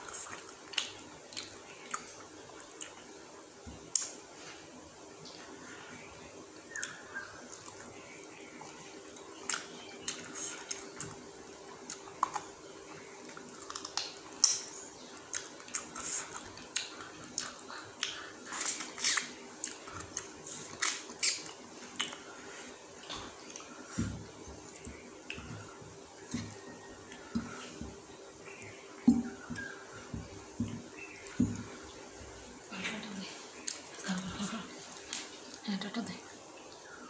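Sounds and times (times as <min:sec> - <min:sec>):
faint steady hum: 0:00.0 - 0:37.0
wet chewing mouth sounds: 0:08.6 - 0:29.8
lip smacks: 0:13.3 - 0:22.3
finger licking: 0:15.3 - 0:22.2.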